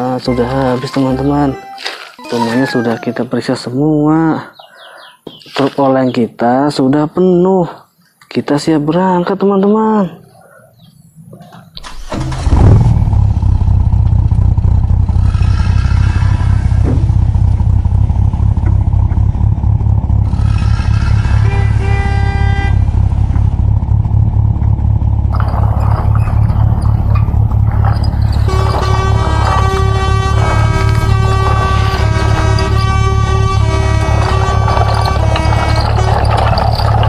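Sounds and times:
horn honking: 0.0s - 3.1s, 19.2s - 23.8s, 25.3s - 37.0s
truck engine running: 12.0s - 37.0s.

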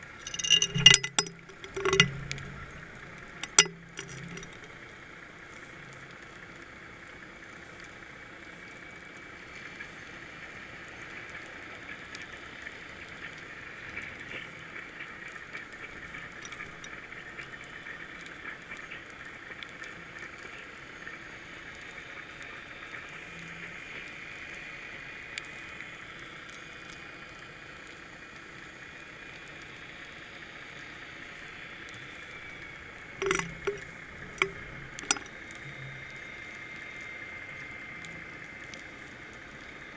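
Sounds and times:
faint crackling ticks: 0.0s - 39.9s.

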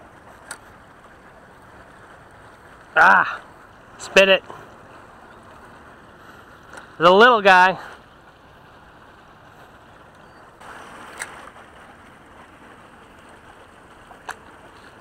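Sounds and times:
outdoor hiss: 10.5s - 12.6s.

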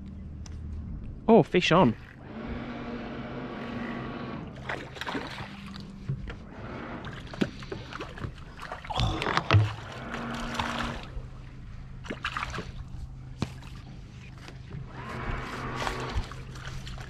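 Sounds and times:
low hum: 0.0s - 17.0s
fish splashing at the surface: 4.6s - 5.9s, 12.0s - 12.9s.

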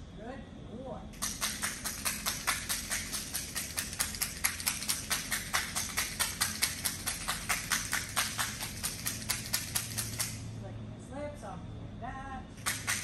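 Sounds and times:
hand clappers clicking: 1.2s - 10.5s, 12.6s - 13.0s.

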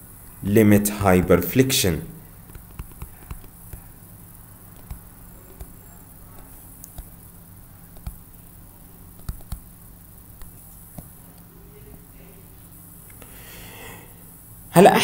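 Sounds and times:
low steady hum: 0.0s - 15.0s
stylus tapping on tablet screen: 2.5s - 3.9s, 4.8s - 5.8s, 6.4s - 7.1s, 7.9s - 8.2s, 9.2s - 9.7s.

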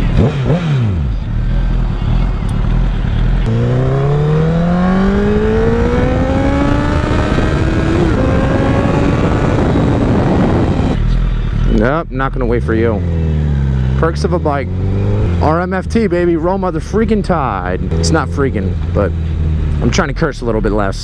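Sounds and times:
motorcycle engine accelerating: 0.0s - 21.0s
wind rush on microphone: 4.4s - 11.1s.

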